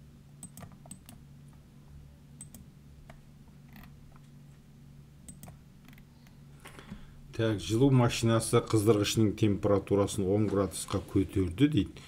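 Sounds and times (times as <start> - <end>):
low steady hum: 0.0 - 12.0
computer mouse clicks: 0.4 - 1.2, 2.4 - 4.2, 5.3 - 6.4.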